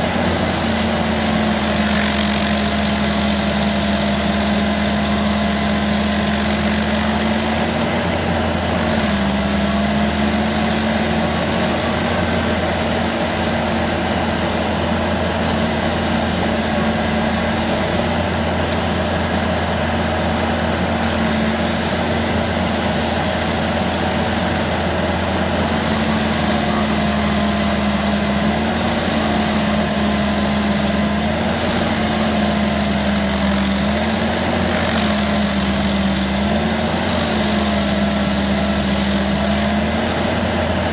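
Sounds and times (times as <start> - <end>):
cutter wheel grinding wood: 0.0 - 40.9
stump grinder engine under load: 0.0 - 40.9.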